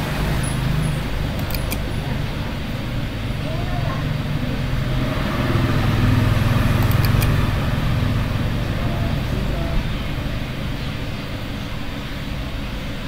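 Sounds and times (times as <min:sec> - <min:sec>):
vehicle passing: 0:00.0 - 0:10.7
road traffic rumble: 0:00.0 - 0:13.0
light clicks: 0:01.3 - 0:01.9, 0:06.8 - 0:07.4.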